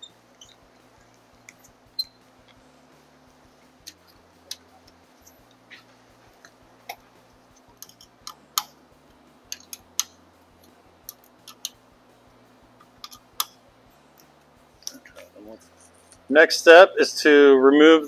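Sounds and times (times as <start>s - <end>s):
sharp clicks: 3.7s - 11.9s.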